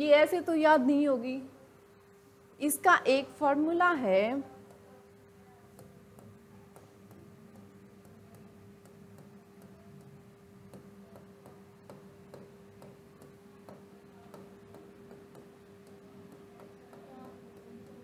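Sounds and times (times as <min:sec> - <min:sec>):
steady hum: 0:00.0 - 0:18.0
stylus tapping on glass: 0:05.8 - 0:18.0.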